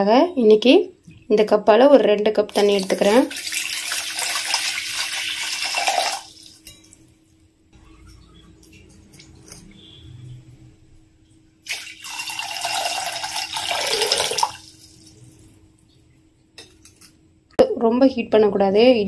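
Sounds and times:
water pouring into saucepan: 2.5s - 6.7s, 11.6s - 15.4s.

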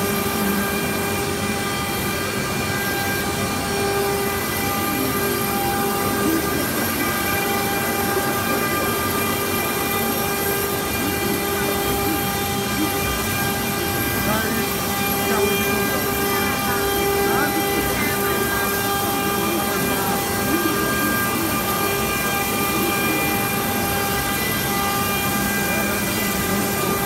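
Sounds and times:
router spindle whine: 0.0s - 27.0s.

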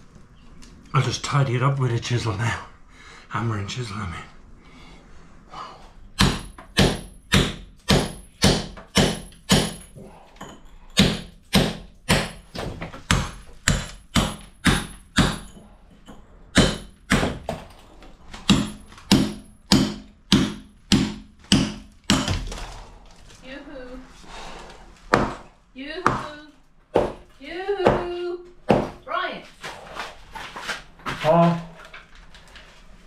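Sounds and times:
hammer striking steel chisel: 6.2s - 12.5s, 13.1s - 17.6s, 18.5s - 22.4s.

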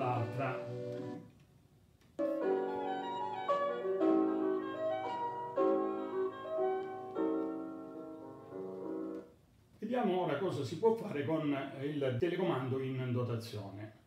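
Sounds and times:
piano music through speakers: 0.0s - 1.4s, 2.2s - 9.4s.

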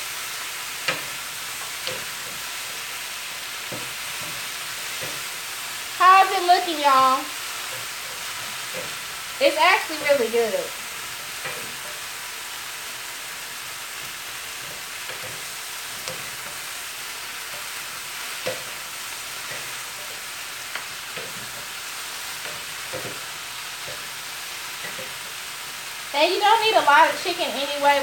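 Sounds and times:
vegetables sizzling in skillet: 0.0s - 28.0s
wooden spatulas knocking pan: 17.4s - 24.2s.

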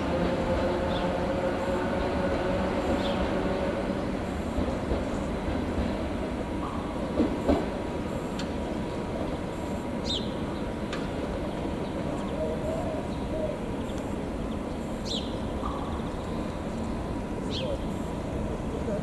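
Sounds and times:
electric train rumbling: 0.0s - 19.0s
bird chirping: 13.1s - 16.4s.

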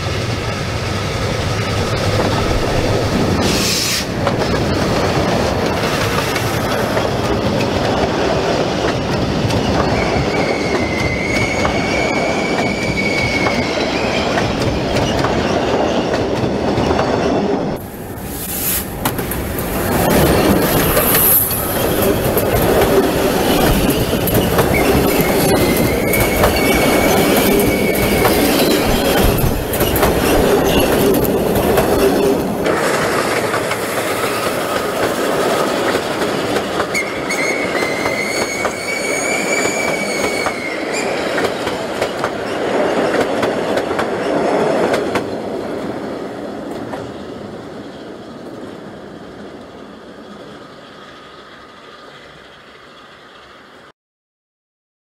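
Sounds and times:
train wheels clattering over rail joints: 1.8s - 17.7s, 18.8s - 45.5s
high wheel squeal: 9.6s - 16.0s, 23.2s - 31.2s, 36.9s - 41.4s.

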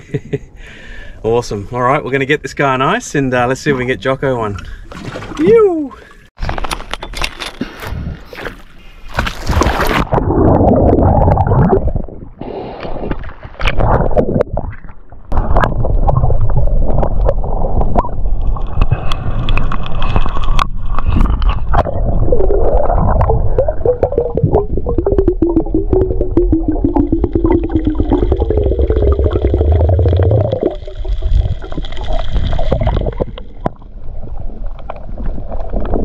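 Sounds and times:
underwater gurgling and rushing: 7.8s - 36.0s.

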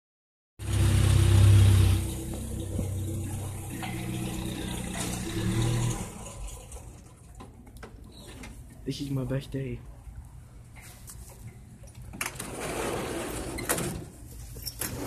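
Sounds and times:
truck engine running: 0.6s - 6.7s.

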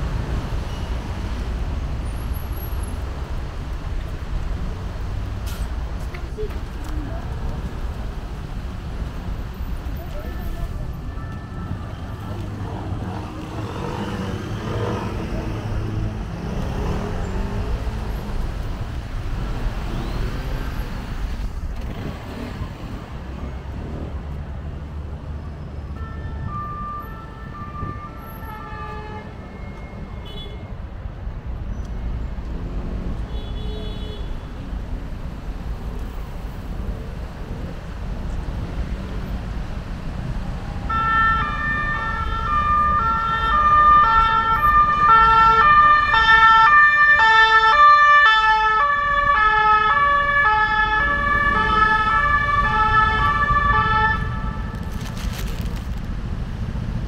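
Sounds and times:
street traffic rumble: 0.0s - 57.0s
two-tone siren: 25.9s - 28.4s, 40.8s - 54.4s.

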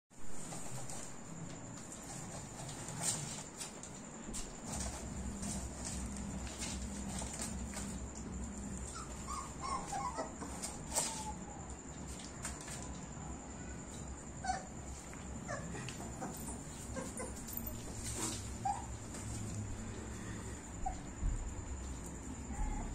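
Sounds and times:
puppies whimpering: 8.6s - 11.5s, 14.4s - 14.7s, 15.4s - 19.1s.

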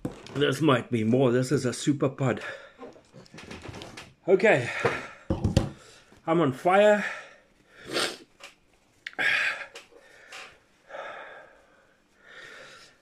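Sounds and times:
man breathing hard: 9.1s - 13.0s.

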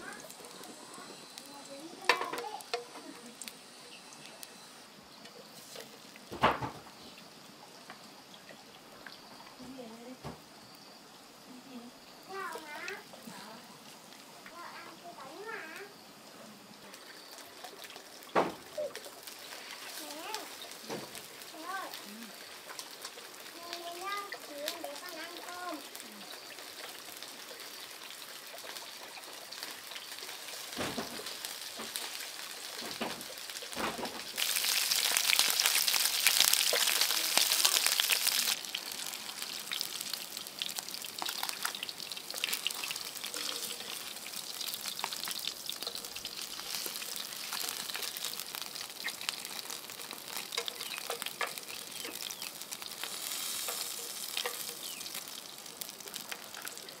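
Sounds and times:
food sizzling in hot oil: 0.0s - 57.0s.

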